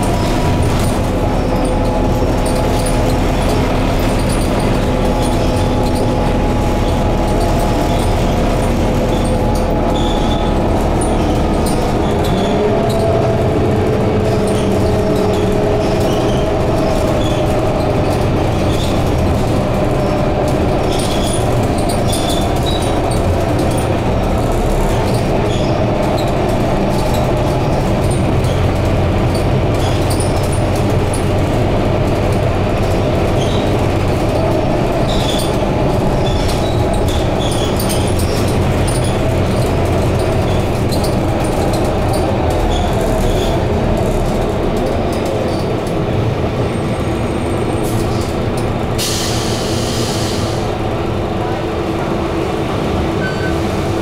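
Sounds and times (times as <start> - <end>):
bus engine drone: 0.0 - 54.0
road noise: 0.0 - 54.0.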